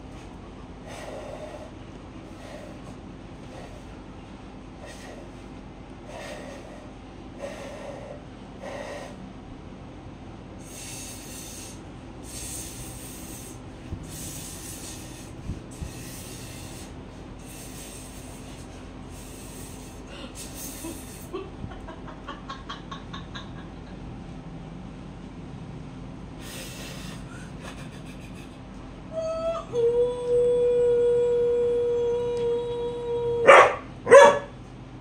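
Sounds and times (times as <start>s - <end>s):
person blowing breathy gusts: 0.8s - 4.0s, 4.7s - 9.3s, 10.6s - 21.4s, 26.4s - 28.7s.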